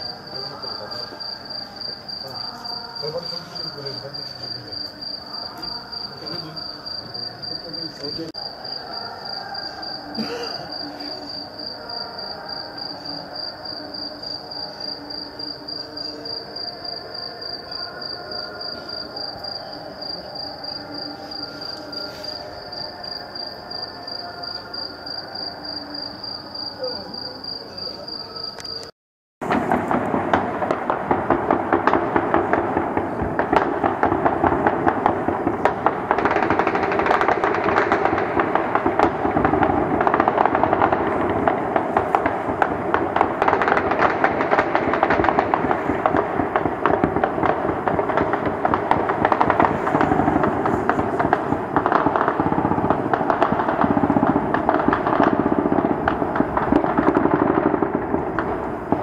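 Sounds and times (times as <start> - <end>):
distant voices: 0.0 - 28.8
crickets chirping: 0.0 - 28.9
gunfire cracks: 29.4 - 59.0.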